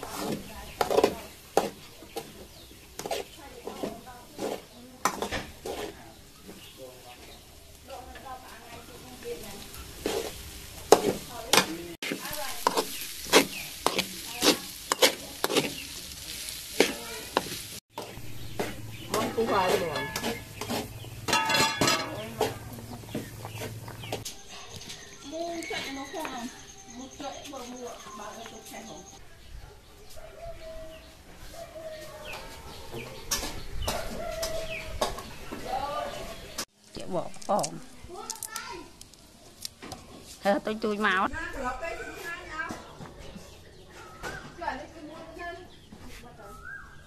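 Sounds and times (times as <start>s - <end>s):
metal spatula scraping a wok: 0.0s - 25.1s
steady sizzling hiss: 0.0s - 29.1s, 36.7s - 41.9s
chickens clucking: 9.8s - 36.7s.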